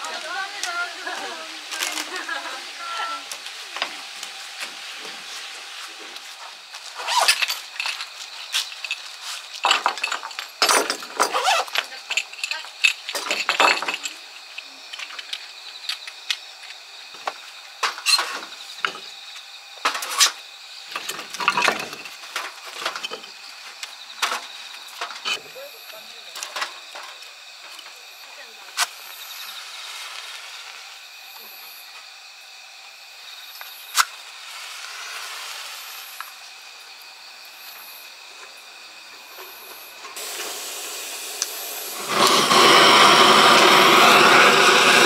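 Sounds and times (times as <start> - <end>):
firewood clattering: 3.3 - 15.4, 21.0 - 23.4
wood clinking against metal: 7.1 - 16.1, 21.0 - 23.4.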